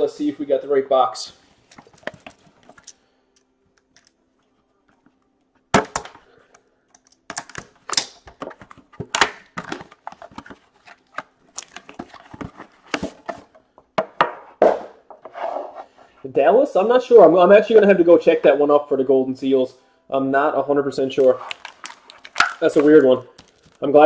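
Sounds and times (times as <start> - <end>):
rustling of cardboard and packaging: 8.3 - 13.7, 21.1 - 24.0.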